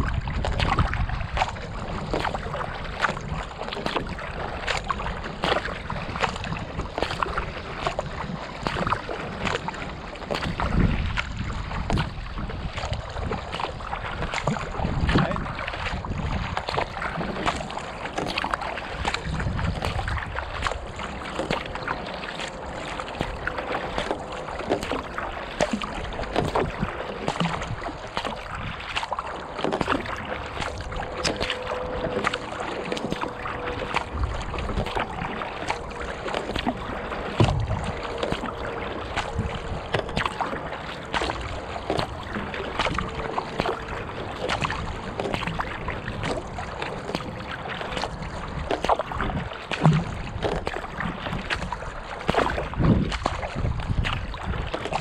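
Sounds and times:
water splashing along kayak hull: 0.0s - 55.0s
low rumble: 9.6s - 51.0s.

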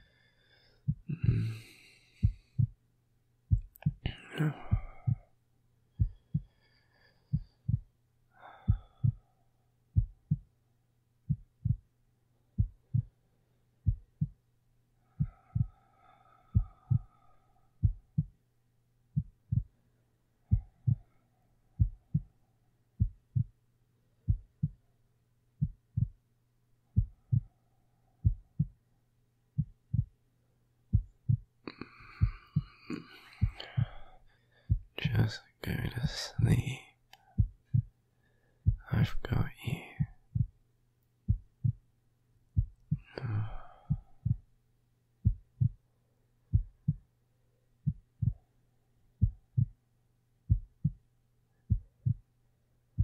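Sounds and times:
heartbeat thumps: 0.9s - 1.5s, 2.2s - 2.8s, 3.5s - 5.3s, 6.0s - 6.6s, 7.3s - 8.0s, 8.6s - 9.3s, 9.9s - 10.5s, 11.3s - 11.9s, 12.5s - 13.2s, 13.8s - 14.4s, 15.2s - 15.8s, 16.5s - 18.4s, 19.1s - 19.8s, 20.5s - 21.1s, 21.7s - 22.4s, 23.0s - 23.6s, 24.2s - 24.8s, 25.6s - 26.2s, 26.9s - 27.6s, 28.2s - 28.8s, 29.6s - 30.2s, 30.9s - 35.2s, 35.8s - 36.6s, 37.3s - 38.0s, 38.6s - 40.6s, 41.3s - 41.8s, 42.6s - 44.5s, 45.2s - 45.8s, 46.5s - 47.0s, 47.8s - 48.5s, 49.2s - 49.8s, 50.5s - 51.0s, 51.6s - 52.3s.

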